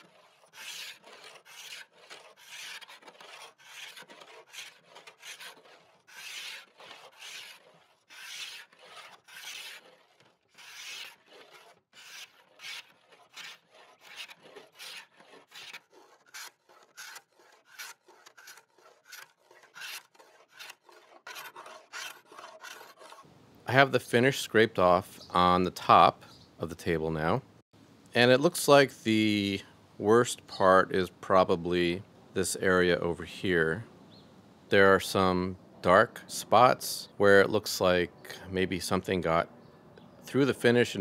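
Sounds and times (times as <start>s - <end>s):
hand scraper rasping on wood: 0.0s - 23.3s.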